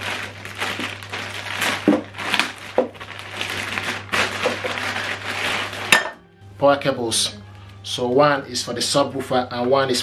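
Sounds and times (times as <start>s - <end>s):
cables rummaged: 0.0s - 6.0s
plastic bag crinkling: 0.0s - 6.1s.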